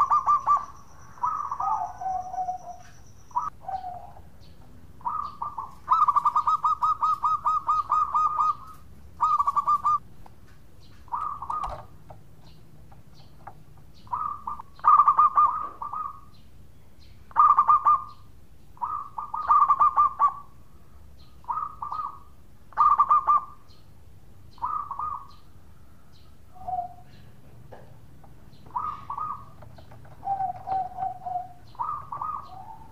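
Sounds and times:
dove cooing in trilled notes: 0:00.0 - 0:04.3, 0:05.0 - 0:10.0, 0:11.1 - 0:11.9, 0:14.0 - 0:16.4, 0:17.3 - 0:18.2, 0:18.8 - 0:20.5, 0:21.4 - 0:23.7, 0:24.5 - 0:25.4, 0:26.6 - 0:27.3, 0:28.6 - 0:32.9.

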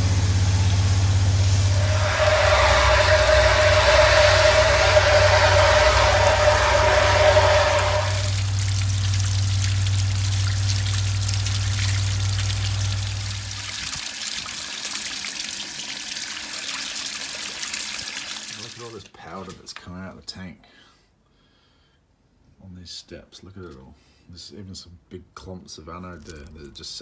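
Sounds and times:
low engine-like hum: 0:00.0 - 0:13.7.

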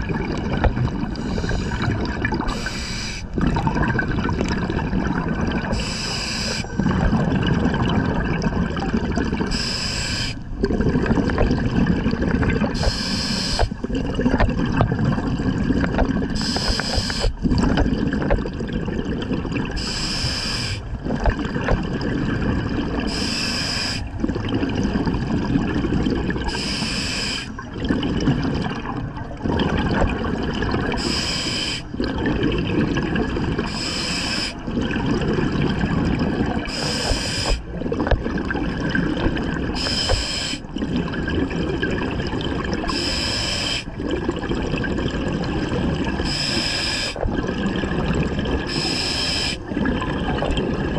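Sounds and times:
burbling exhaled bubbles: 0:00.0 - 0:26.7, 0:27.5 - 0:31.2, 0:31.8 - 0:50.9
regulator hissing inhale: 0:01.2 - 0:01.9, 0:02.5 - 0:03.3, 0:05.7 - 0:06.8, 0:09.5 - 0:10.4, 0:12.8 - 0:13.8, 0:16.4 - 0:17.4, 0:19.8 - 0:20.9, 0:23.1 - 0:24.1, 0:26.5 - 0:27.6, 0:31.0 - 0:31.9, 0:33.7 - 0:34.6, 0:36.7 - 0:37.7, 0:39.8 - 0:40.6, 0:42.9 - 0:43.9, 0:46.2 - 0:47.2, 0:48.7 - 0:49.6.

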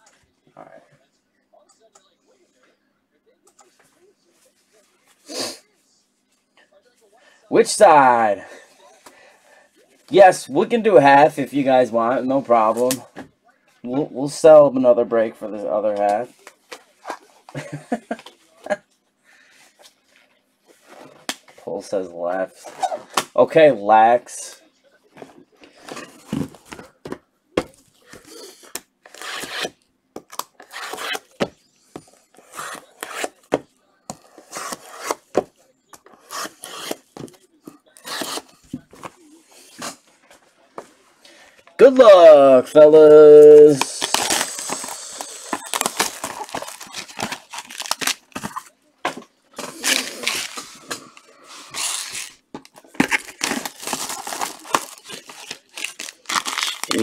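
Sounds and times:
plastic wrapping rustling: 0:43.6 - 0:57.0.

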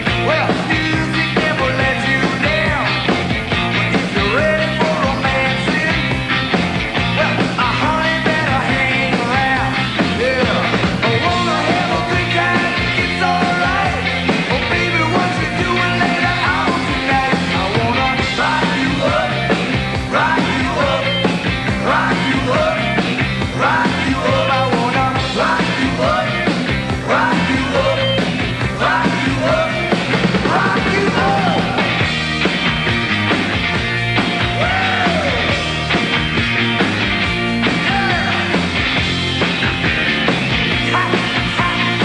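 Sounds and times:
man singing: 0:00.0 - 0:03.2, 0:04.0 - 0:06.2, 0:07.1 - 0:32.1, 0:34.5 - 0:35.7, 0:37.7 - 0:38.6, 0:40.8 - 0:42.0
bass: 0:00.0 - 0:42.0
drums: 0:00.0 - 0:42.0
electric guitars: 0:00.0 - 0:42.0.

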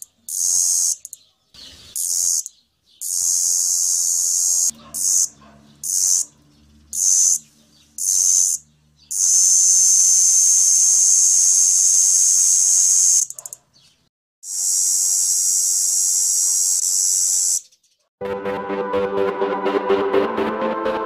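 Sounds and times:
cicada buzzing: 0:00.3 - 0:01.1, 0:02.0 - 0:13.4, 0:14.4 - 0:17.6.

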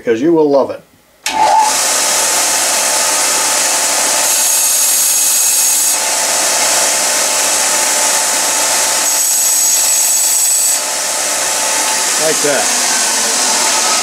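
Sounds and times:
belt sander grinding brass: 0:01.3 - 0:14.0.

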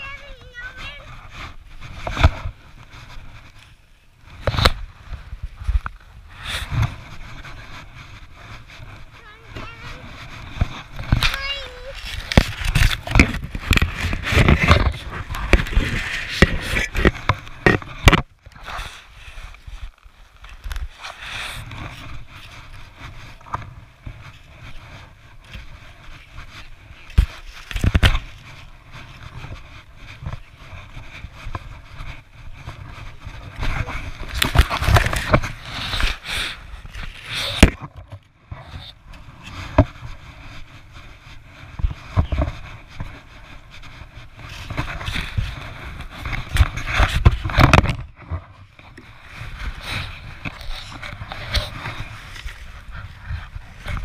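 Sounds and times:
fabric rubbing against camera: 0:00.0 - 0:54.0
plastic shovel scraping snow: 0:00.0 - 0:54.0.

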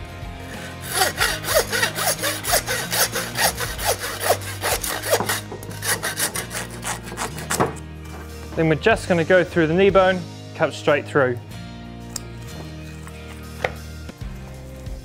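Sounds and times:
hand saw cutting bone: 0:00.6 - 0:07.8.

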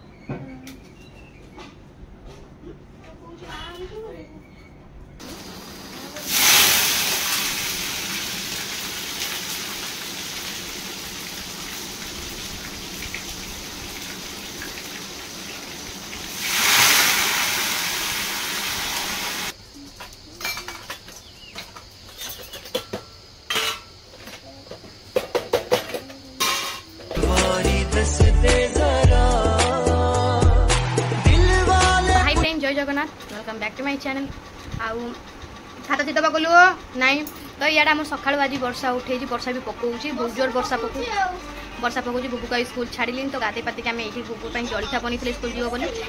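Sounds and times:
hot oil sizzling in a pan: 0:05.2 - 0:19.6
music: 0:27.1 - 0:32.6.

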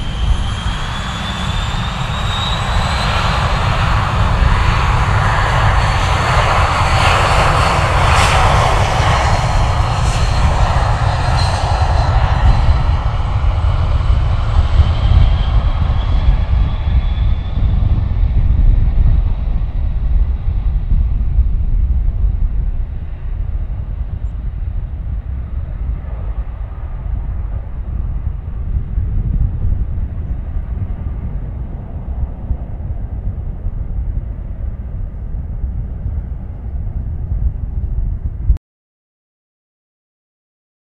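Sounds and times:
jet engines whining at take-off: 0:00.0 - 0:38.5.

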